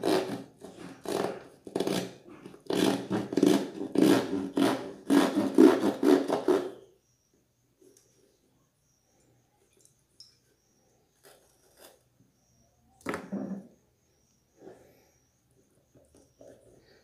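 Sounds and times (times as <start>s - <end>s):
knife sawing through cardboard: 0.0s - 6.8s.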